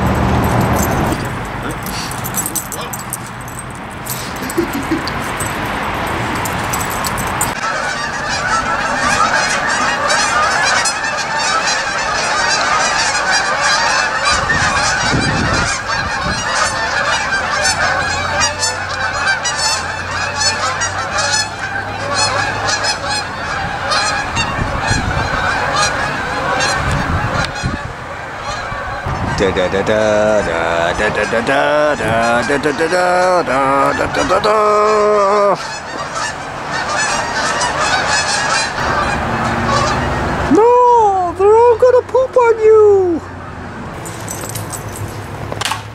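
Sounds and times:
geese honking: 4.2s - 40.6s.

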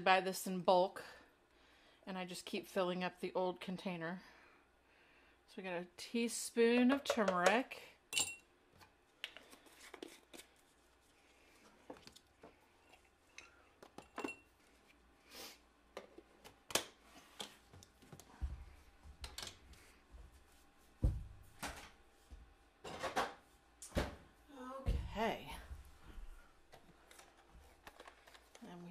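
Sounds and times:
kitchen containers clicking and knocking: 7.0s - 8.4s.

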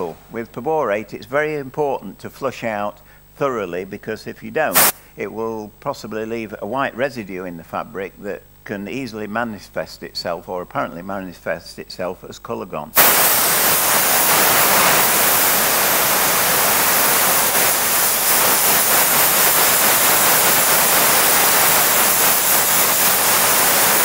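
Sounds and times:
steam gun hissing: 4.7s - 5.1s, 13.0s - 24.0s.

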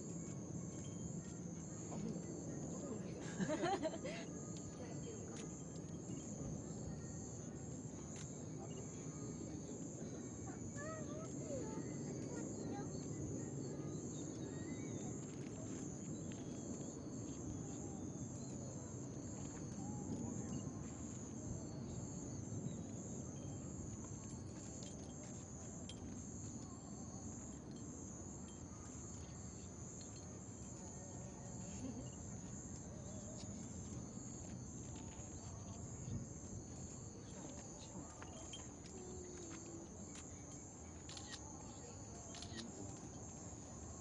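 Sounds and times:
low background murmur: 0.0s - 44.0s
night insects trilling: 0.0s - 44.0s.

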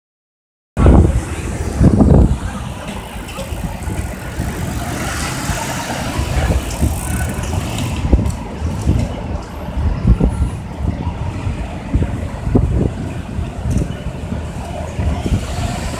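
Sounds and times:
cars passing: 0.8s - 15.9s
wind buffeting microphone: 0.8s - 15.9s.

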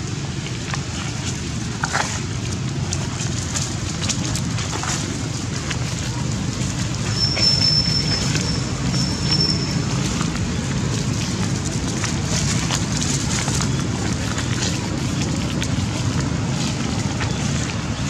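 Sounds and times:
thin high whistles: 7.1s - 9.8s.

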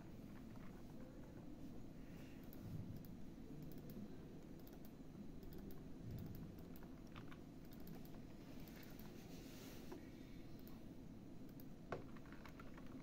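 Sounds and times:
low steady hum: 0.0s - 13.0s
keyboard and mouse clicks: 2.4s - 9.2s, 11.4s - 13.0s.

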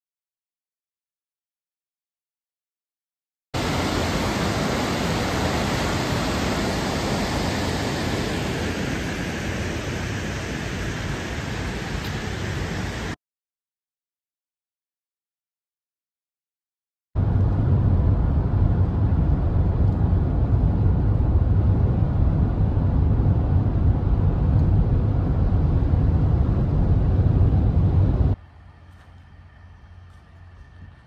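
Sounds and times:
faint outdoor ambience: 3.6s - 13.2s, 17.2s - 31.0s
vehicle cabin road noise: 17.2s - 31.0s.

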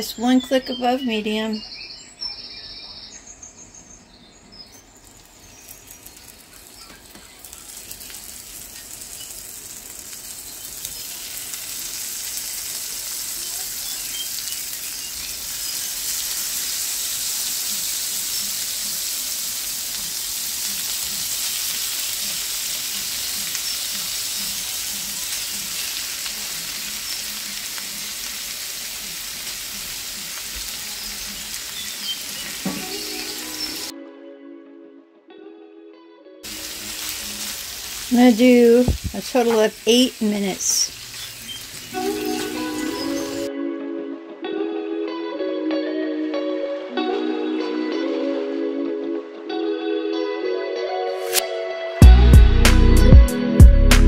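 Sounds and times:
shrimp sizzling in a pan: 4.8s - 33.9s, 36.4s - 43.5s.

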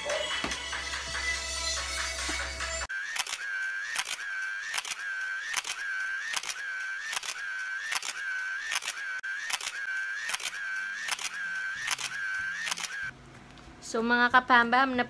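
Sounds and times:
background music: 0.0s - 2.9s
short whirring tone: 2.9s - 13.1s
camera shutter click: 3.1s - 13.1s.

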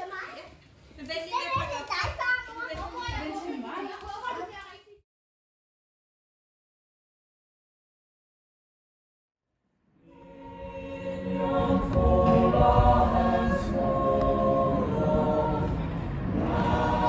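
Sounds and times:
group singing a carol unaccompanied: 10.0s - 17.0s.

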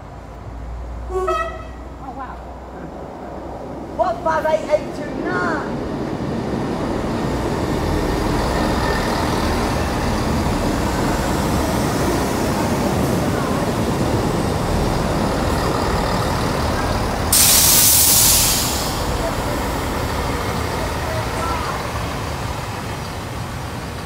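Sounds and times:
train rumbling: 0.0s - 24.0s
air brake hiss: 17.3s - 19.2s.

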